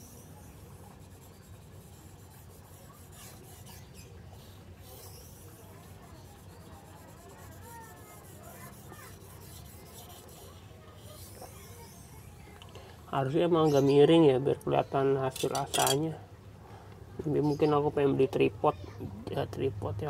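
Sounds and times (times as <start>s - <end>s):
knife scraping on whetstone: 0.0s - 4.1s, 4.9s - 12.3s, 15.4s - 16.0s.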